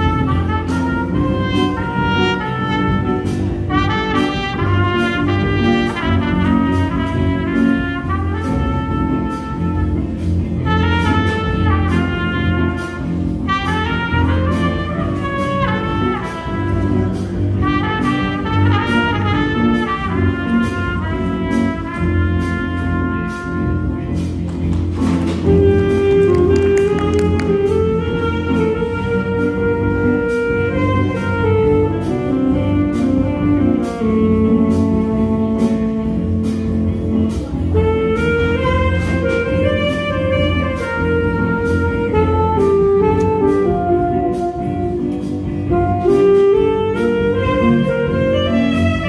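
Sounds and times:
live jazz band playing: 0:00.0 - 0:49.0
held horn note: 0:25.4 - 0:49.0.

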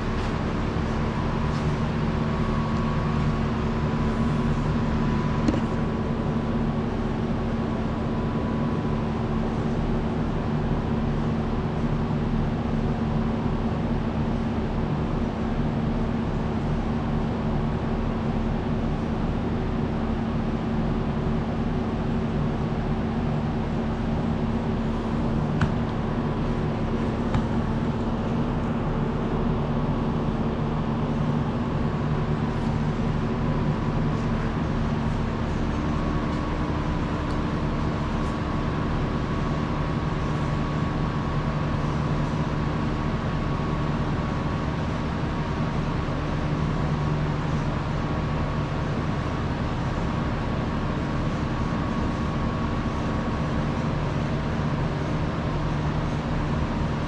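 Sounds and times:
diesel engine idling: 0:23.8 - 0:35.0.

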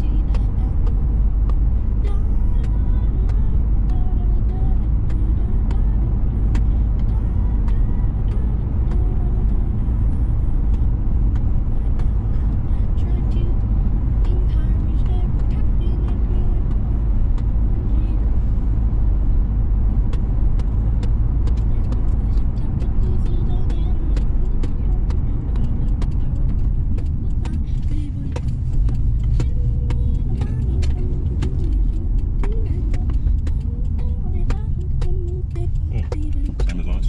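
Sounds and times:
car engine and tyres rumbling: 0:00.0 - 0:37.0
faint clicks: 0:20.1 - 0:36.8.

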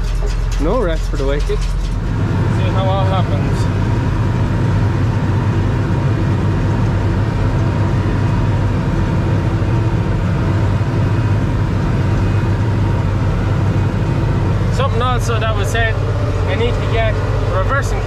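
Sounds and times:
tractor engine droning: 0:00.0 - 0:18.0.

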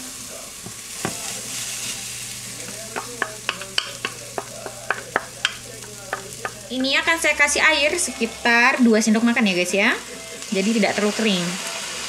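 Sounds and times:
food sizzling in a frying pan: 0:00.0 - 0:12.0
spatula knocking against pan: 0:02.7 - 0:07.0.

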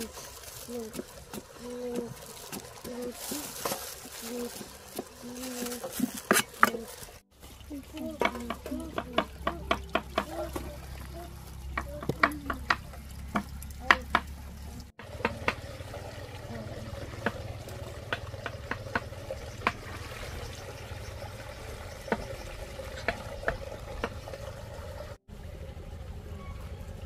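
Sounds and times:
clicks and scrapes of tubers: 0:00.0 - 0:07.2
light water sounds: 0:00.0 - 0:26.0.

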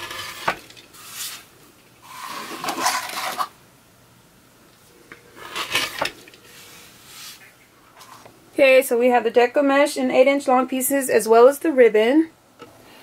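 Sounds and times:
rotary cutter rasping through fabric: 0:00.0 - 0:00.6.

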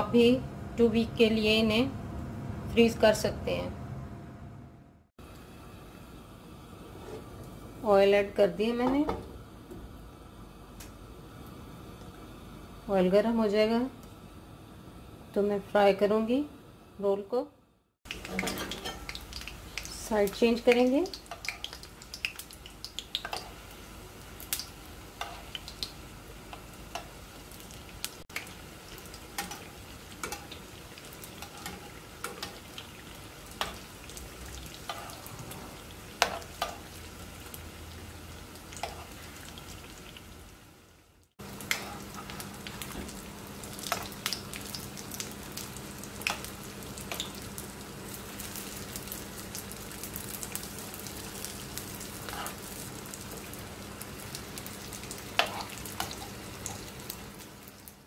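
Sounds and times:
food sizzling in hot oil: 0:18.0 - 0:58.0.

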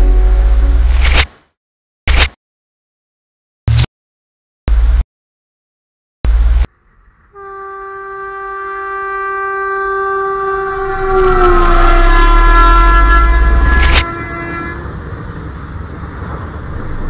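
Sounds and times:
train rumble: 0:06.5 - 0:17.0
train horn blast: 0:07.3 - 0:15.2.

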